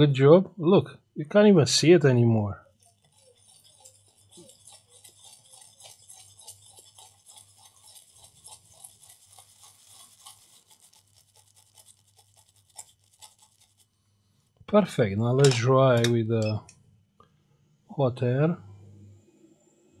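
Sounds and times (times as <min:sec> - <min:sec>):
small brush scrubbing: 0:02.6 - 0:14.6.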